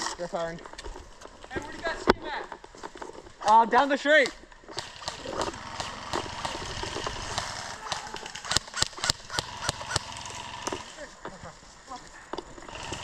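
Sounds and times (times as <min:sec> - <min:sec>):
sharp irregular clicks and snaps: 0:03.4 - 0:10.8
rustling and scuffing: 0:10.8 - 0:12.6.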